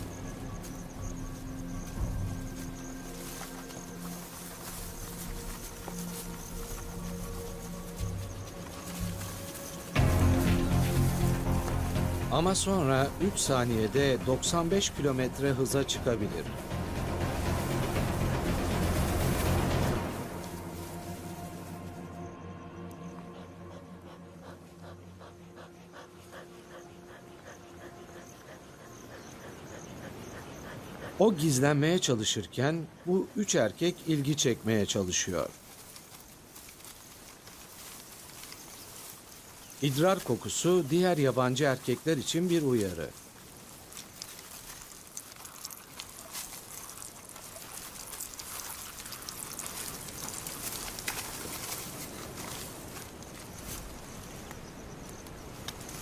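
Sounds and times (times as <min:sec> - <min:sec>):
background music: 0:00.0 - 0:35.4
cheetah panting: 0:23.0 - 0:34.3, 0:35.8 - 0:53.5
rustles and clicks: 0:42.4 - 0:56.0
liquid spattering and trickling: 0:43.8 - 0:51.5.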